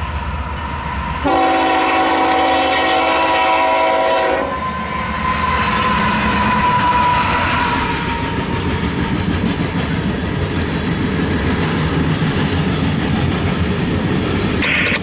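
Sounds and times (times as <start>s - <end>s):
train wheels rumbling and clacking: 0.0s - 15.0s
locomotive horn: 1.2s - 8.2s.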